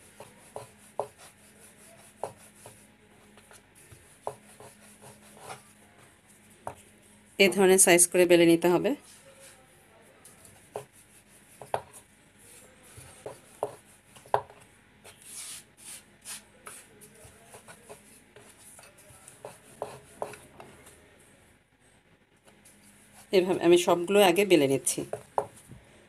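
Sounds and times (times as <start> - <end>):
hands rubbing flour on board: 0.0 - 2.8, 3.4 - 6.9, 15.1 - 20.4
patting dough: 0.0 - 7.6, 10.2 - 21.0.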